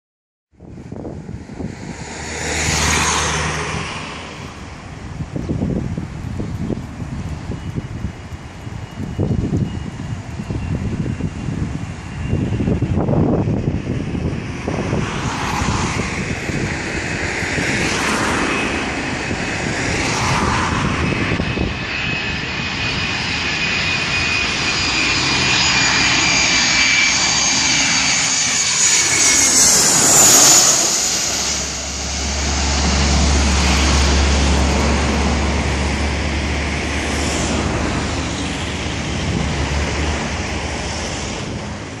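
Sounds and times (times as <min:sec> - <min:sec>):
low jet rumble: 0:00.5 - 0:42.0
jet engines whining overhead: 0:00.6 - 0:42.0.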